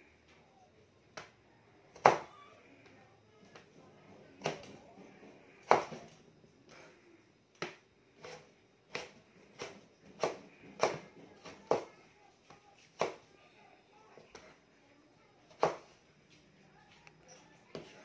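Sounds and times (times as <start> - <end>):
knife chopping on cutting board: 2.0 - 2.3, 5.6 - 6.1, 7.6 - 12.0.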